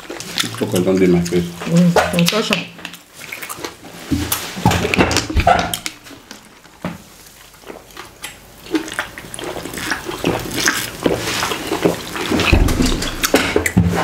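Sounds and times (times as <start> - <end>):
gulping and swallowing water: 7.4 - 13.8.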